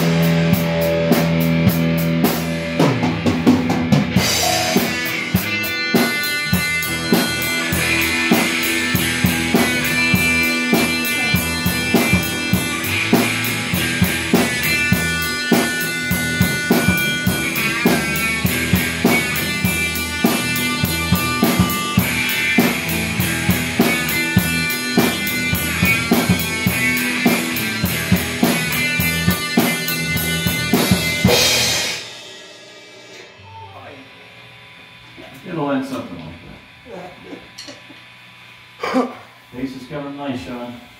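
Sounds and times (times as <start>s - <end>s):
electric guitar chords: 0.0s - 39.5s
cymbal strokes: 4.2s - 23.2s, 30.9s - 33.4s.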